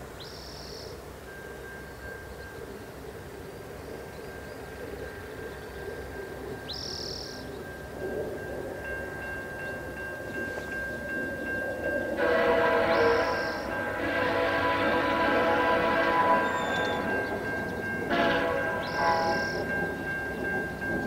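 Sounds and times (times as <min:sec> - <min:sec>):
level-crossing warning bell: 0:00.3 - 0:21.0
locomotive horn chord: 0:12.2 - 0:19.9
bird call: 0:12.8 - 0:13.8, 0:16.2 - 0:17.6, 0:18.6 - 0:19.7.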